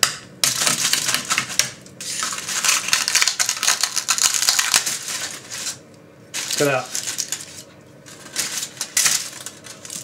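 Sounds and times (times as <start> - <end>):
aluminium foil crinkling: 0.5 - 10.0
pork crackling crunching: 2.2 - 5.8.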